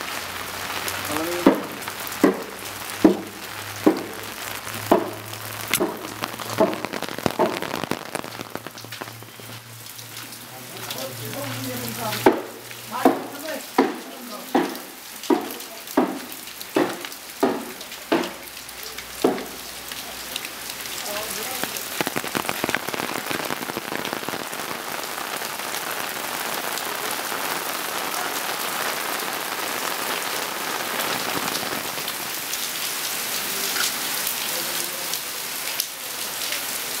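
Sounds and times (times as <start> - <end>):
rain on umbrella: 0.0 - 37.0
footsteps: 4.9 - 10.4.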